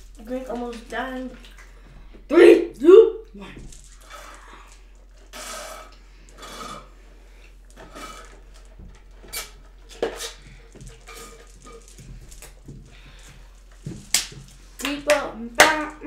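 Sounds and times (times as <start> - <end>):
slurping through a straw: 4.0 - 11.4.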